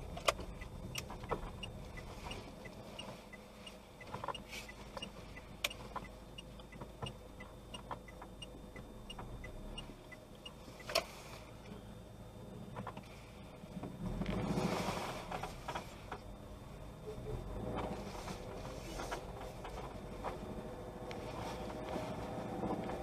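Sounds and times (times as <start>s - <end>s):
car engines passing: 12.8s - 23.0s.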